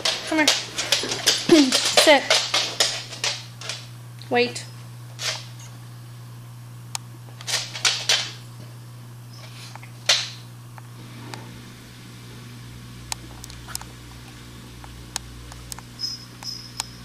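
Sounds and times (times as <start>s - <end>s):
dogs sniffing: 0.0s - 3.5s
steady low hum: 0.0s - 17.0s.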